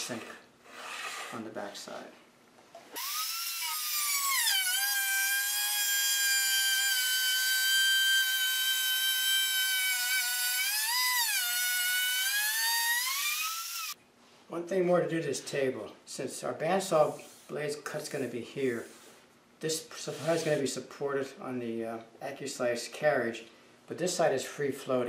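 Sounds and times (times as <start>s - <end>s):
router motor whining: 2.9s - 14.0s.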